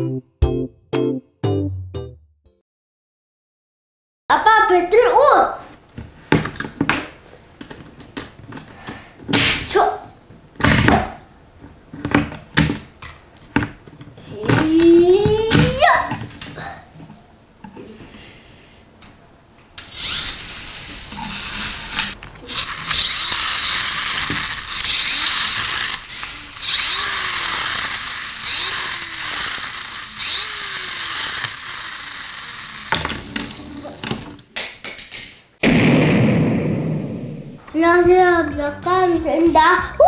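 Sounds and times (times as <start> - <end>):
toy gear ratcheting and whirring: 19.8 - 34.4.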